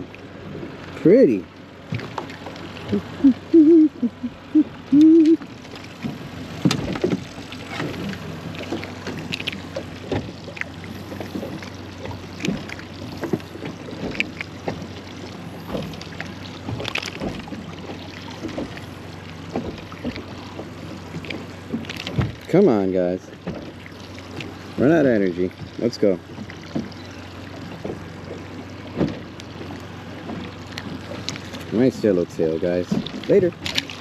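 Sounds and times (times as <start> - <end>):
water lapping against boat hull: 0.0 - 34.0
man humming: 2.8 - 5.4
light knocks and clicks: 26.4 - 31.8.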